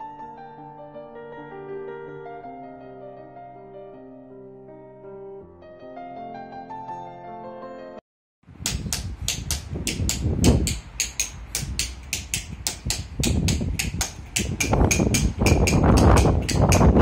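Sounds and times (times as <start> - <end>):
hammer tapping chisel: 8.6 - 17.0.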